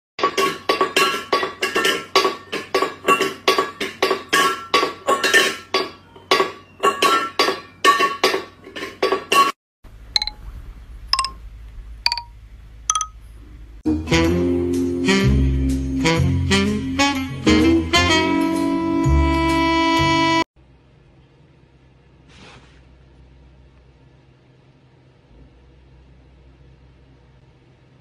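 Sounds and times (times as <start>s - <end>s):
high pings: 11.2s - 11.4s, 12.1s - 12.3s, 12.9s - 13.2s.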